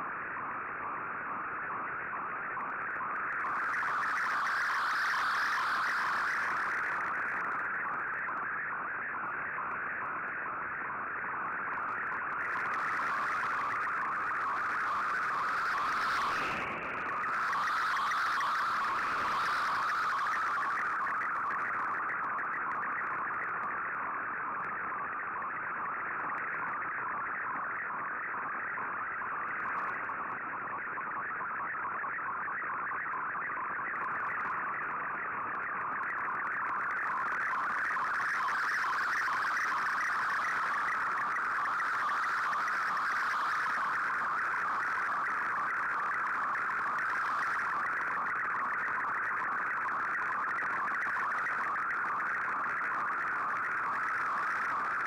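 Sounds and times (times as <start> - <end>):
digital data warble: 3.4 - 8.0, 11.8 - 23.1, 36.2 - 55.0.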